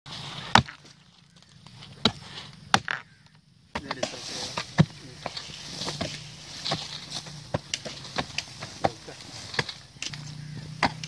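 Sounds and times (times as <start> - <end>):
axe chopping wood: 0.5 - 0.9, 2.0 - 3.1, 3.8 - 11.0
men's voices: 3.7 - 11.0.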